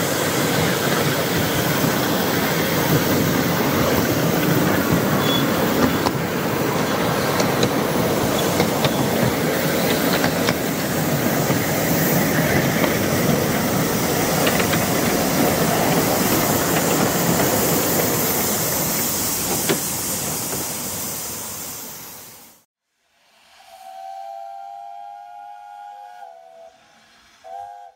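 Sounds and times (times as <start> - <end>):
miniature steam locomotive running: 0.0 - 22.4
steam hissing: 0.0 - 27.9
wheels rumbling on track: 0.2 - 21.1.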